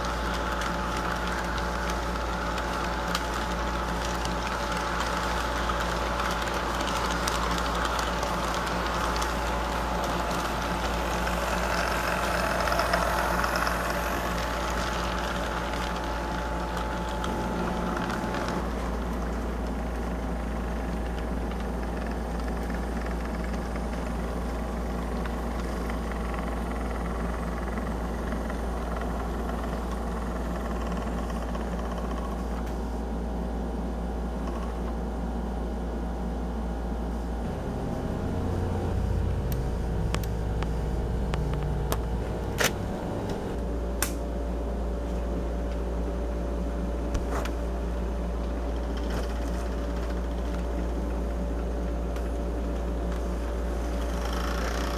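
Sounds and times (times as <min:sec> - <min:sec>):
wheels clicking over track: 0:00.0 - 0:19.7
model train motor hum: 0:00.0 - 0:32.7, 0:48.8 - 0:54.9.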